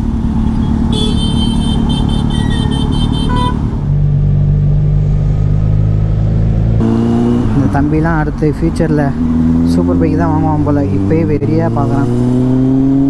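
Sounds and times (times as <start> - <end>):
motorcycle engine running: 0.0 - 13.0
vehicle horn honking: 0.5 - 3.7.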